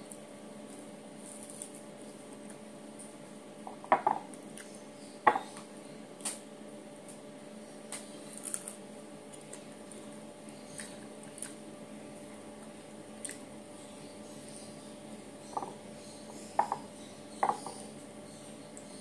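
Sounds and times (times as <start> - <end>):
faint steady hum: 0.0 - 19.0
knocks against ceramic bowl: 3.7 - 4.3, 5.3 - 5.5, 15.5 - 15.8, 16.6 - 17.8.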